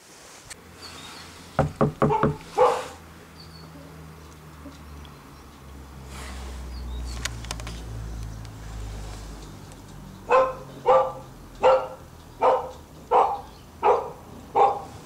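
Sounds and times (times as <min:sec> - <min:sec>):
dog barking: 0:02.0 - 0:03.0, 0:10.3 - 0:15.0.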